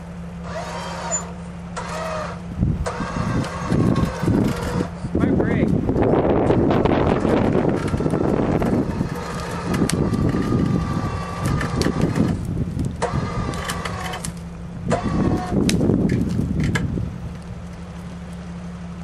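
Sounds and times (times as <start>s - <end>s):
engine hum: 0.0s - 19.0s
electric winch motor whining: 0.4s - 5.1s, 6.5s - 18.2s
brush cracking and rustling: 7.1s - 19.0s.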